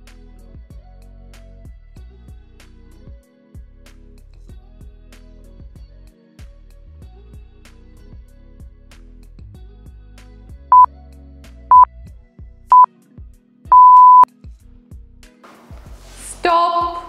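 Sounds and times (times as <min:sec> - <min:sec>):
background music with steady beat: 0:00.0 - 0:17.0
timer beeps: 0:13.7 - 0:14.2.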